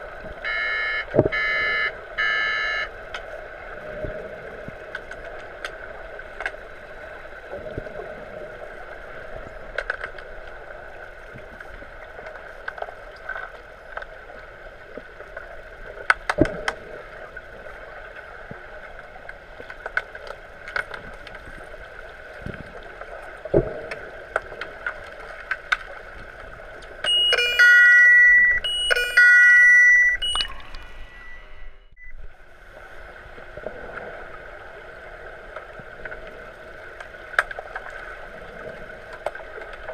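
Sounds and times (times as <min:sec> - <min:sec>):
underwater hum: 0:00.0 - 0:39.9
electronic buzzer blasts: 0:00.5 - 0:02.9, 0:27.1 - 0:31.9
underwater clicks and knocks: 0:01.1 - 0:01.5, 0:09.7 - 0:10.3, 0:16.0 - 0:16.9, 0:23.5 - 0:27.4, 0:37.0 - 0:38.0.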